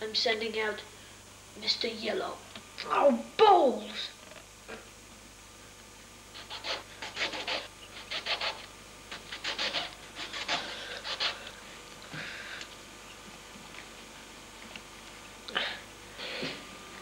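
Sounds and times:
knife sawing into lemon: 6.4 - 11.6.

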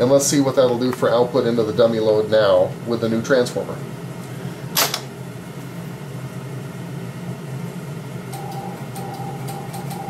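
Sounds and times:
amplifier hum and fan noise: 0.0 - 10.0.

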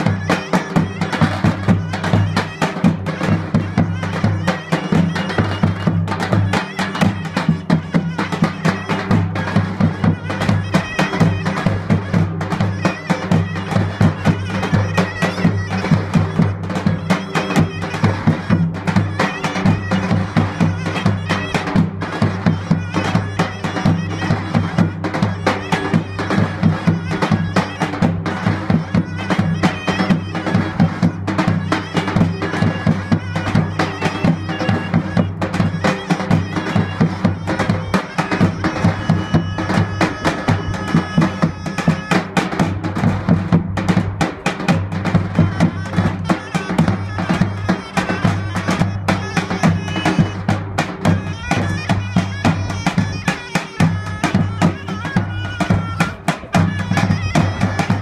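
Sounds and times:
zurna melody: 0.0 - 58.0.

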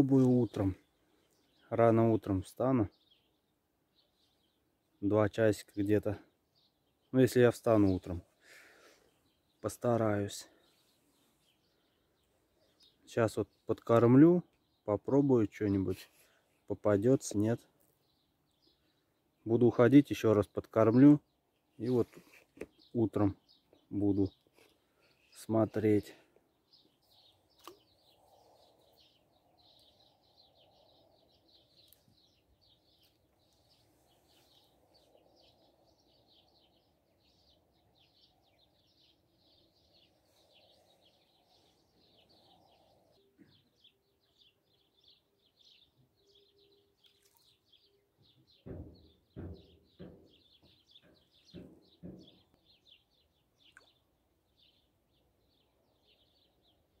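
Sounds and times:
small birds chirping: 0.0 - 57.0
knocks and thumps: 48.6 - 52.6.

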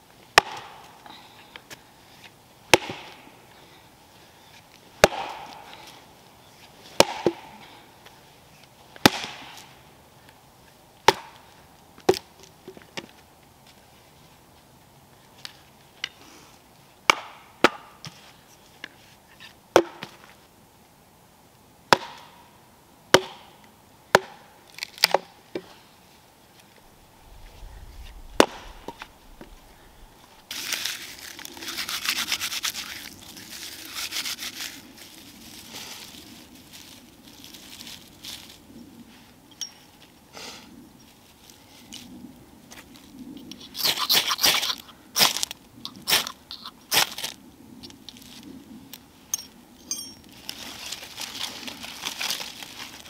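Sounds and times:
wooden knocks of splitting firewood: 0.4 - 0.8, 2.7 - 3.2, 5.0 - 5.6, 7.0 - 7.5, 9.0 - 9.6, 11.1 - 11.4, 17.1 - 18.2, 19.7 - 20.3, 21.9 - 22.3, 23.1 - 23.5, 24.1 - 24.4
knife scraping wood: 31.4 - 34.8.

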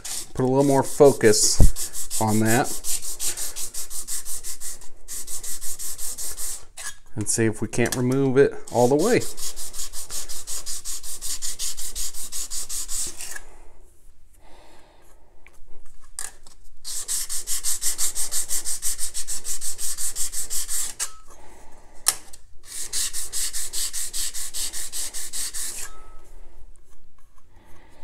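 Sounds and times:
steel scraper grinding on stone: 0.0 - 4.6, 19.8 - 21.2, 22.7 - 26.2.

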